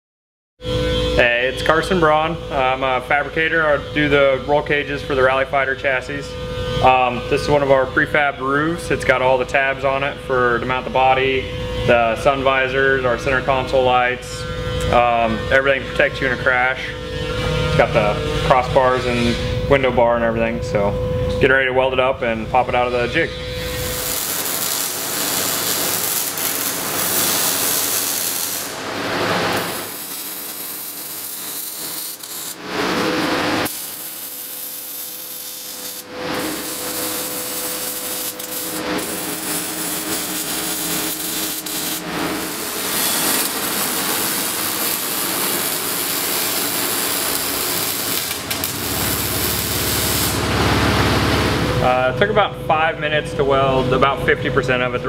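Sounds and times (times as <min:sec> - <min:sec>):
arc welding: 0:22.5 - 0:51.8.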